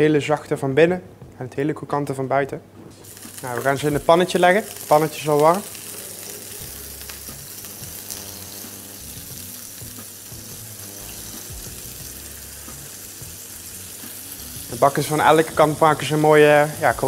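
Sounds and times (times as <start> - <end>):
pork sizzling in frying pan: 3.0 - 17.0.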